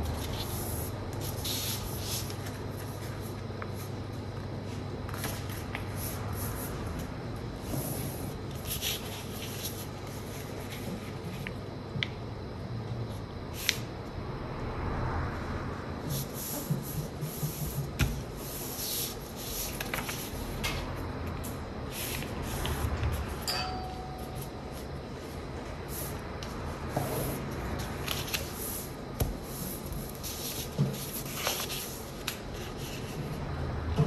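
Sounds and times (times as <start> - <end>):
paper rustling and rubbing: 0.1 - 4.0, 8.0 - 11.5, 16.1 - 20.9, 27.8 - 33.4.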